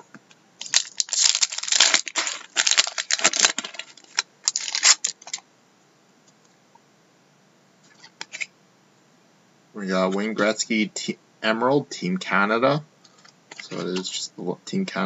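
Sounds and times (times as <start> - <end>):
foil wrapper crinkling and tearing: 0.6 - 5.4.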